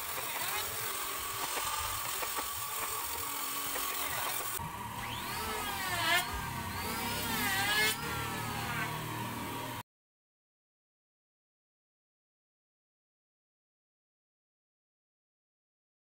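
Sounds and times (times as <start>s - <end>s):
low hum: 4.6s - 9.8s
sliding wavering pitched tones: 4.6s - 9.8s.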